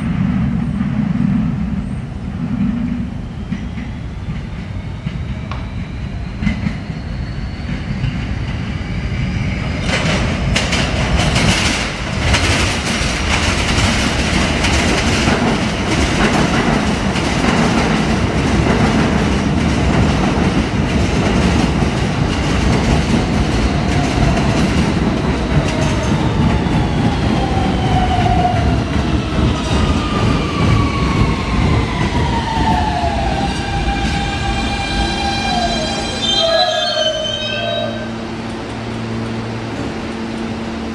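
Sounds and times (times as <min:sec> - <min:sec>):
train wheels rumbling over rail joints: 0:02.4 - 0:35.8
high wheel squeals: 0:34.0 - 0:38.2.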